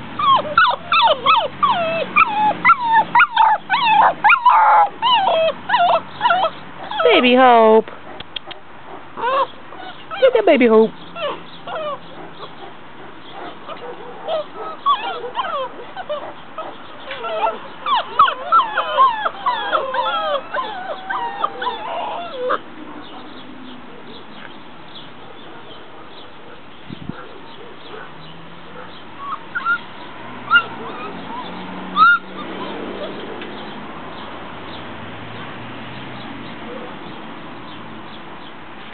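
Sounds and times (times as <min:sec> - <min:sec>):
puppies whining and yipping: 0:00.0 - 0:23.2, 0:28.8 - 0:33.8.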